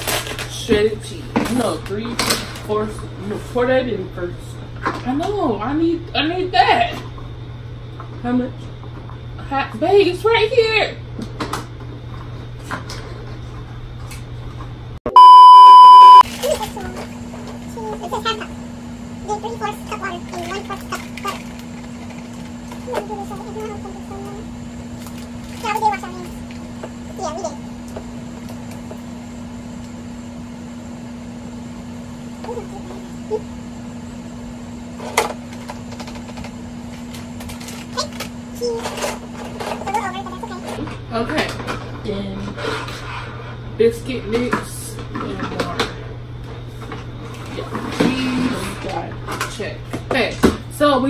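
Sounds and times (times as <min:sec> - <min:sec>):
faint room hum: 0:00.0 - 0:51.0
steady test-tone beep: 0:15.1 - 0:16.2.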